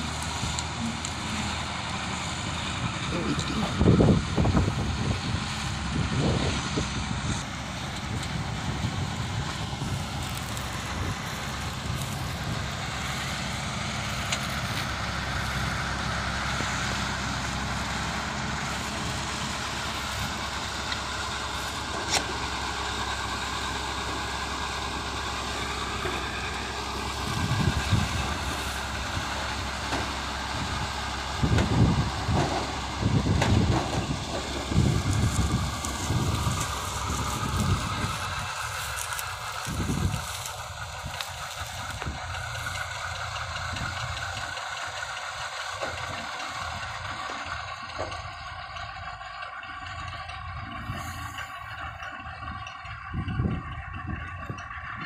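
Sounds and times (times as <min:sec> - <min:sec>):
combine harvester running: 0:00.0 - 0:55.0
wind buffeting microphone: 0:01.5 - 0:16.7, 0:24.2 - 0:44.6, 0:50.4 - 0:55.0.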